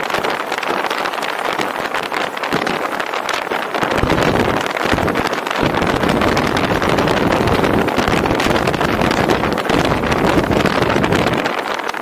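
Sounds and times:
wind noise on microphone: 0.0s - 12.0s
tyre and road rumble: 3.8s - 12.0s.

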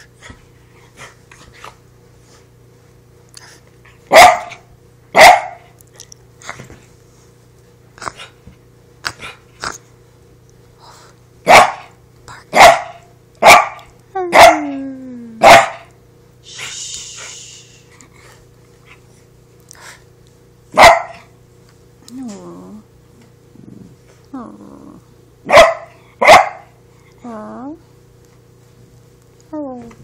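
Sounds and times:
small dog barking: 4.1s - 5.7s, 11.5s - 14.7s, 15.4s - 15.9s, 20.7s - 21.3s, 25.5s - 26.8s.

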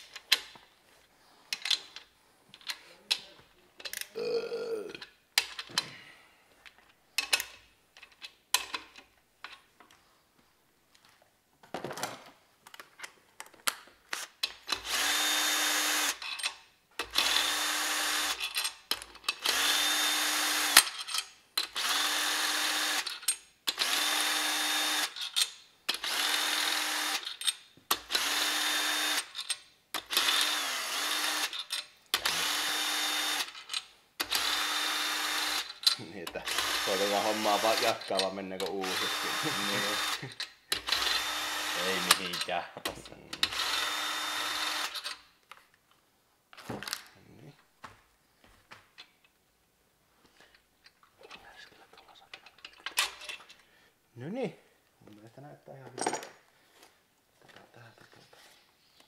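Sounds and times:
cordless drill spinning bolts: 14.6s - 42.5s, 43.4s - 45.2s.

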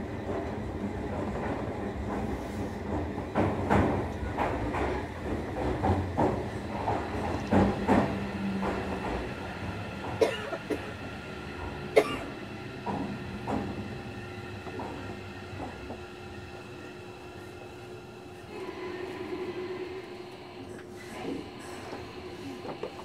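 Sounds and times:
train wheels clacking: 0.0s - 16.7s
train motor hum: 0.0s - 23.0s.

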